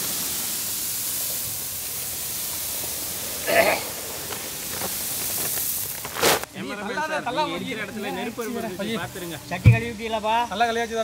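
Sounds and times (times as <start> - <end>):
puffed rice pouring onto metal: 0.0 - 6.5.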